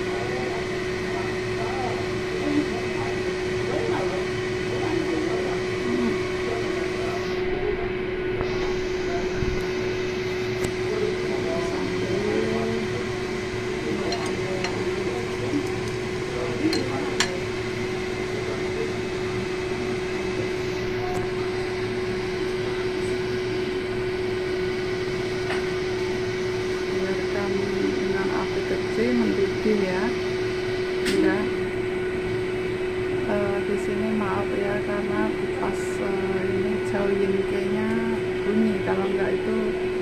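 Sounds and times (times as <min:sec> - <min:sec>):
appliance motor hum: 0:00.0 - 0:40.0.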